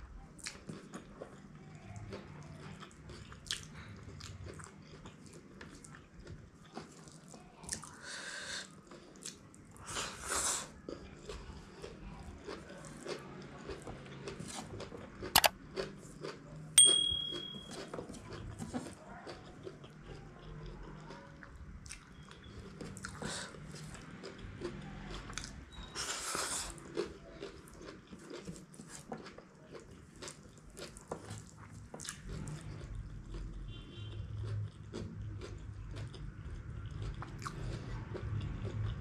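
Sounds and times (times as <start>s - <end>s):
wet chewing and lip smacks: 0.4s - 8.0s, 10.9s - 16.4s, 17.8s - 33.7s
short bright electronic ding: 16.8s - 17.7s.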